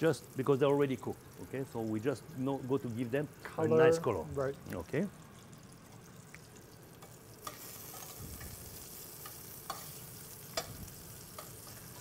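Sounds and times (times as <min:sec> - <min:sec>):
potatoes sizzling in a pan: 0:00.0 - 0:12.0
metal tongs clicking against pan: 0:09.2 - 0:12.0.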